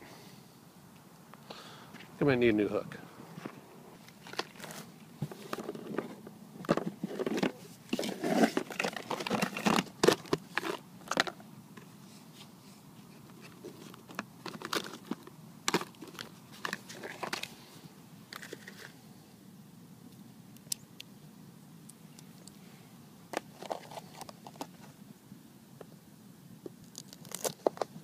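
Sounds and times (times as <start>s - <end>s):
plastic boxes being handled: 3.4s - 17.6s, 23.3s - 25.0s, 26.7s - 28.0s.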